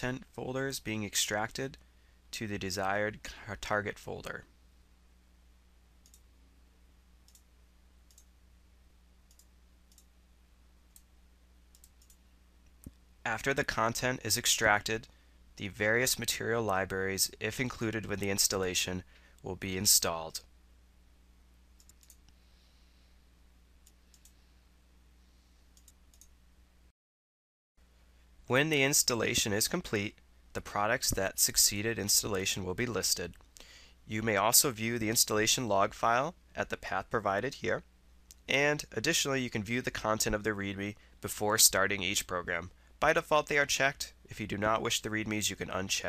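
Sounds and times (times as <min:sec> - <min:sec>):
faint low hum: 0:00.0 - 0:26.9, 0:27.8 - 0:46.0
faint sharp high clicks: 0:07.2 - 0:07.5, 0:09.3 - 0:10.1, 0:11.7 - 0:13.0, 0:21.8 - 0:22.4, 0:23.8 - 0:24.4.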